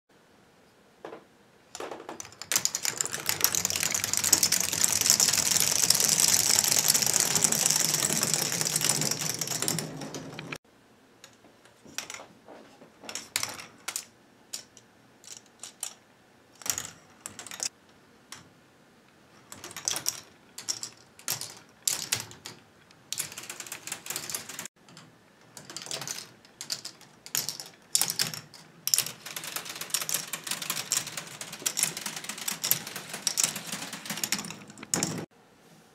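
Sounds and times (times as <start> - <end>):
continuous plastic clatter: 1.0 - 10.6
plastic balls clicking through tracks: 1.1 - 10.6, 16.6 - 18.5, 19.4 - 35.3.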